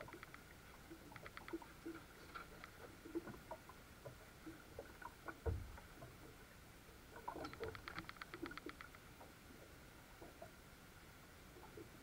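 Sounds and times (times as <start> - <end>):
water patter around a boat: 0.0 - 12.0
fast even clicks: 7.5 - 9.0.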